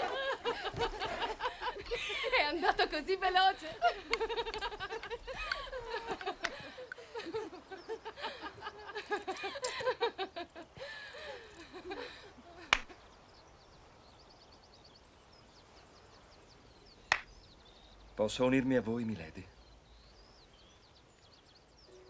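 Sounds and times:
voices laughing and chattering: 0:00.0 - 0:13.2
faint bird chirps: 0:10.7 - 0:22.0
sharp snap: 0:12.7 - 0:13.0, 0:17.1 - 0:17.3.

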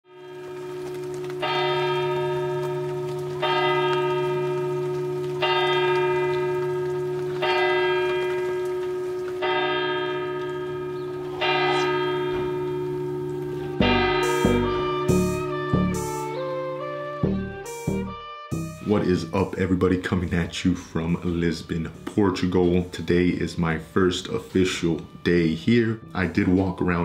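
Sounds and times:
church bell tolling: 0:00.1 - 0:17.4.

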